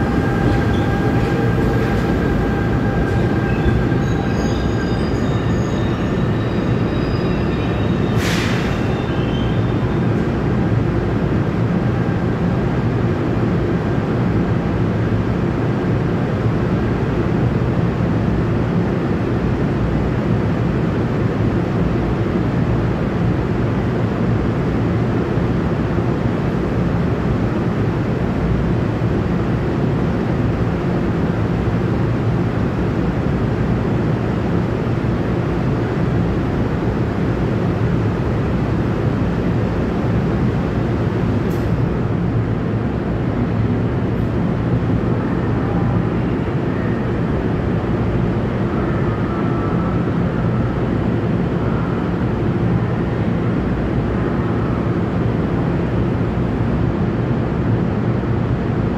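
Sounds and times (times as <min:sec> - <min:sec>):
distant train pulling away: 0:00.0 - 0:12.6.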